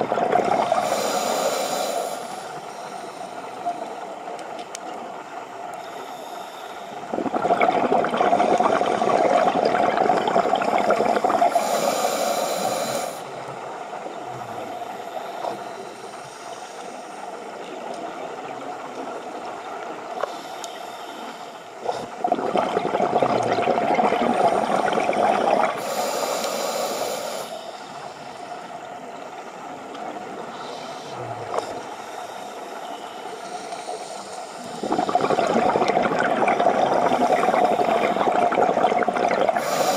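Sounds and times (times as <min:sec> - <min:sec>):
scuba regulator breathing underwater: 0:00.4 - 0:04.0, 0:05.8 - 0:13.4, 0:23.7 - 0:28.7, 0:30.5 - 0:39.9.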